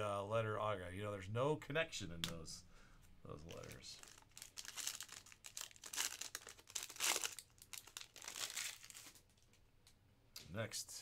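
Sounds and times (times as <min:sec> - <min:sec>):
foil wrapper crinkling and tearing: 0:03.5 - 0:09.5.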